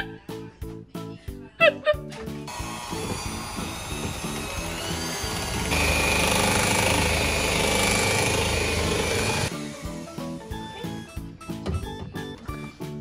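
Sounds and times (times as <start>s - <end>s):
electric hand mixer whirring: 2.5s - 10.1s.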